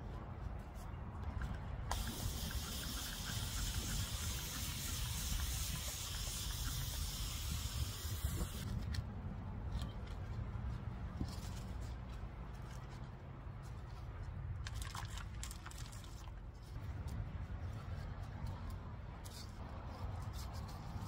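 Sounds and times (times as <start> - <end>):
steady high hiss: 1.9 - 8.6
wind buffeting microphone: 2.0 - 8.7.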